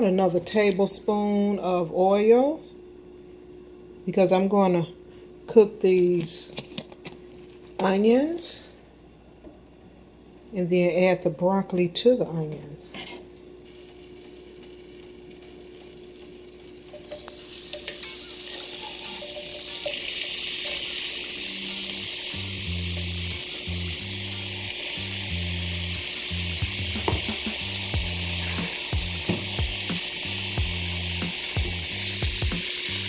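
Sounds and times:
onions sizzling in pan: 13.6 - 33.0.

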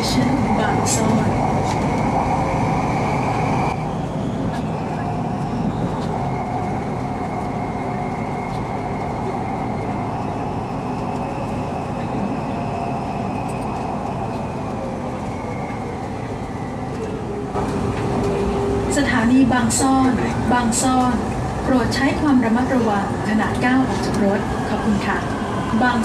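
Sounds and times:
train rumble: 0.0 - 26.0.

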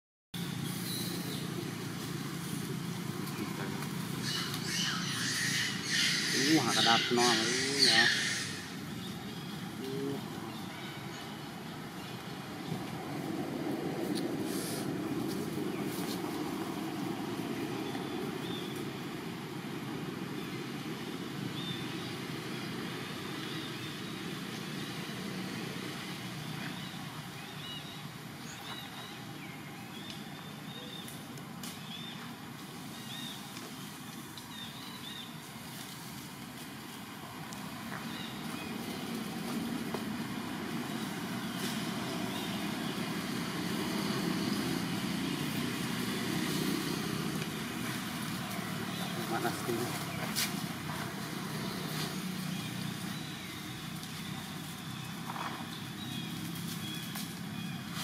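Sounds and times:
monkeys squealing: 4.2 - 8.9.

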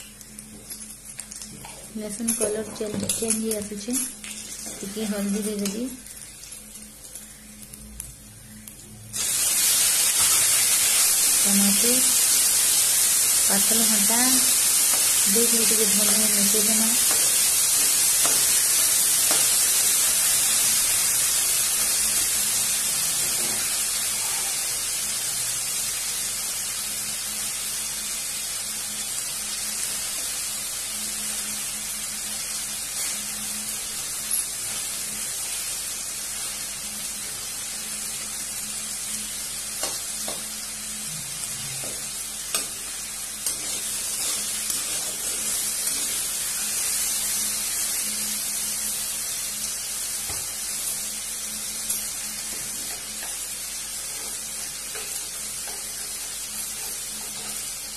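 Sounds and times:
tomato sizzling in hot oil: 0.0 - 57.9
spatula scraping and tapping pan: 41.8 - 46.2.

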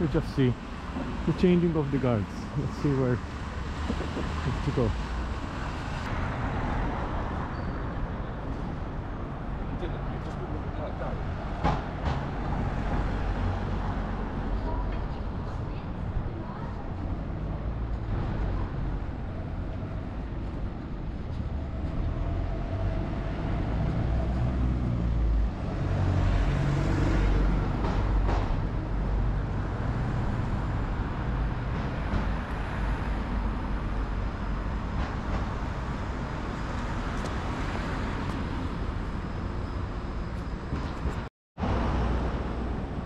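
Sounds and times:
rumble of passing vehicles: 0.0 - 43.0.

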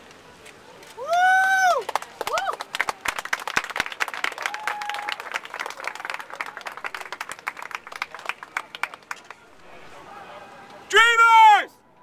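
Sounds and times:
crowd applauding: 1.6 - 10.0.

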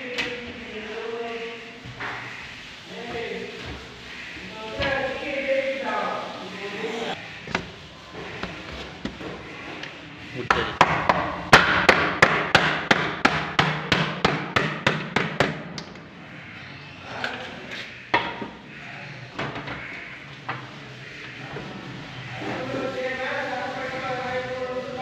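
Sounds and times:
mallet knocking on plastic: 10.5 - 15.6.

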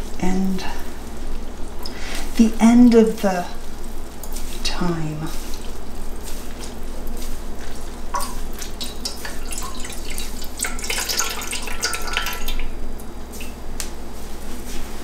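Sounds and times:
dye dripping into a bowl: 5.4 - 13.6.

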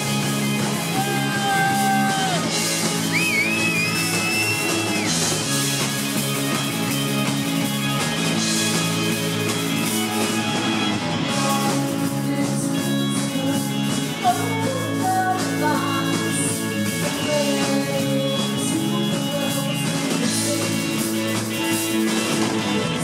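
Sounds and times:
electric guitar: 0.0 - 23.0
live rock band playing: 0.0 - 23.0
woman singing: 11.3 - 21.4.

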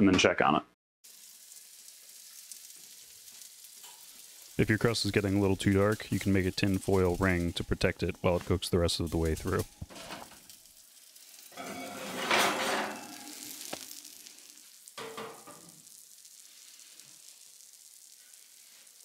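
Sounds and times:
pie sizzling in a skillet: 1.0 - 19.0
skillet scraping on oven rack: 11.6 - 13.6.

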